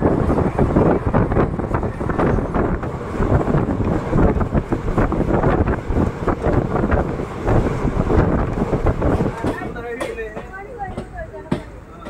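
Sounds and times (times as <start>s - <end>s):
wind on microphone: 0.0s - 9.6s
train wheels rumbling on rails: 0.0s - 12.0s.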